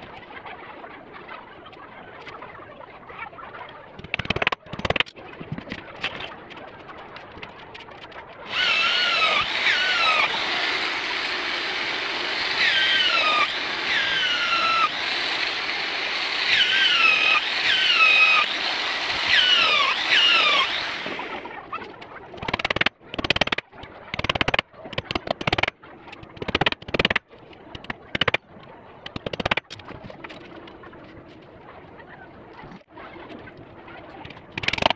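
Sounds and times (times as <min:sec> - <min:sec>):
power drill running: 0:08.5 - 0:21.4.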